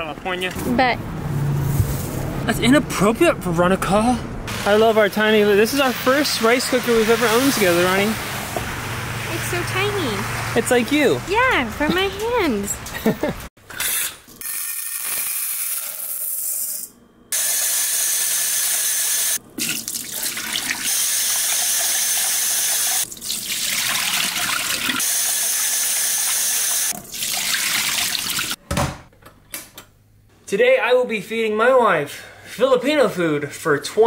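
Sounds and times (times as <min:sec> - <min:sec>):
tap water running into pot: 0:19.6 - 0:28.6.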